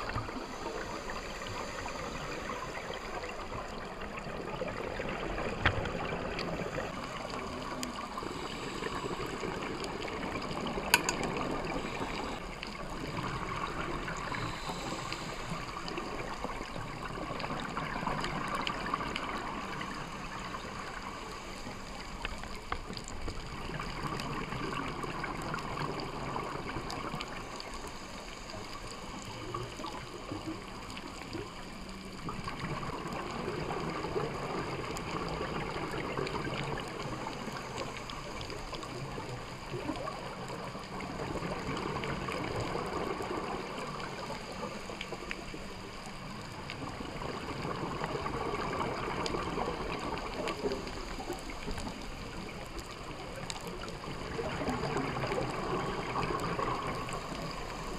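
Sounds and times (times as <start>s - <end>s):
steady watery wash: 0.0s - 57.9s
underwater bubbles gurgling: 0.0s - 57.9s
faint clicks: 8.8s - 24.6s.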